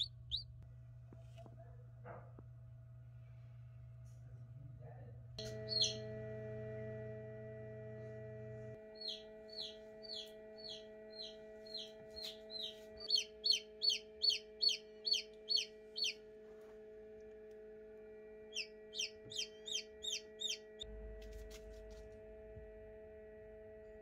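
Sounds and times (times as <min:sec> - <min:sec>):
chick peeping: 0:00.0 - 0:00.5, 0:05.4 - 0:06.1, 0:09.0 - 0:16.2, 0:18.5 - 0:20.7
steady low hum: 0:00.0 - 0:24.0.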